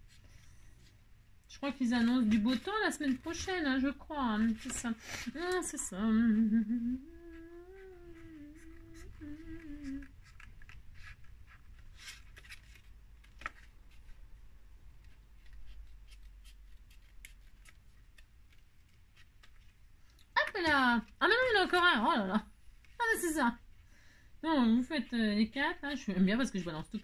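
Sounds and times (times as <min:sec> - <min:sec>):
woman humming: 0:05.4 - 0:10.2.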